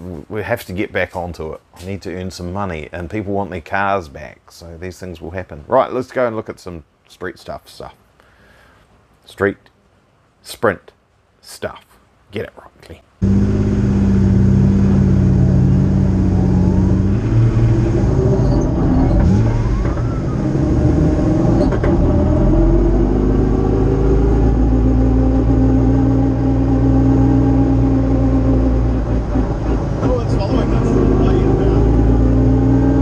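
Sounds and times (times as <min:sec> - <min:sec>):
car engine idling and revving: 0:13.2 - 0:33.0
rising whine: 0:13.2 - 0:33.0.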